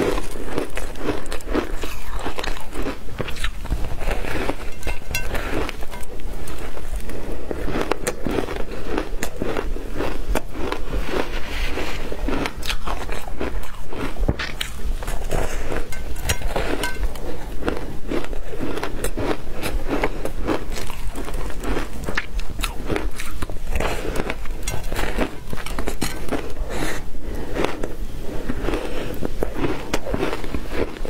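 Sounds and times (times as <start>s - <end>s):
ice crunching between teeth: 0.0s - 31.0s.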